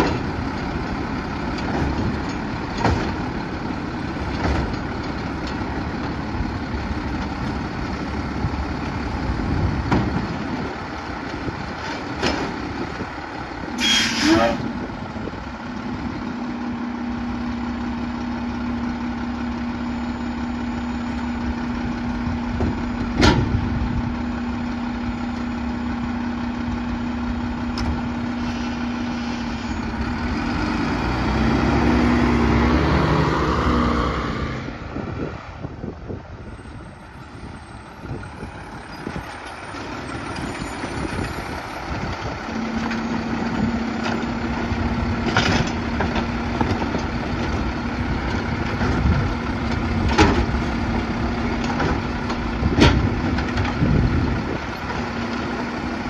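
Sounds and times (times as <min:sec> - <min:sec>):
truck engine revving: 0:25.7 - 0:35.4.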